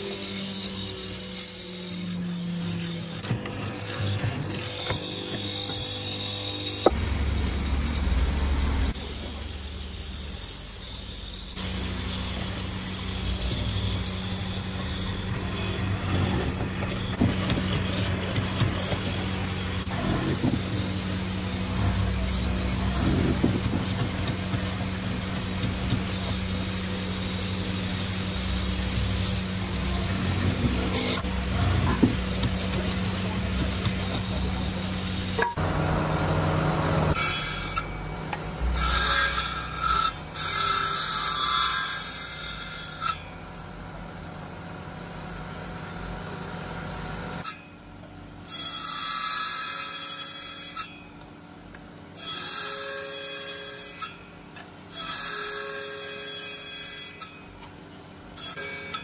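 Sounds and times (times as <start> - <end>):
table saw blade spinning: 0.0 - 35.8
mortising machine cutting wood: 0.0 - 38.0.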